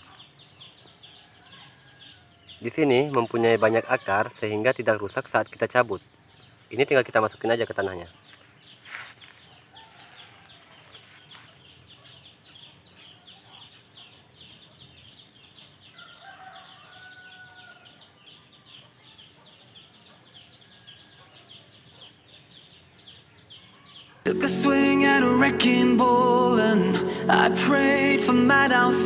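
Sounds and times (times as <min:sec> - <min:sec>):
rooster crowing: 0:00.9 - 0:02.6, 0:09.7 - 0:10.9, 0:15.9 - 0:18.1.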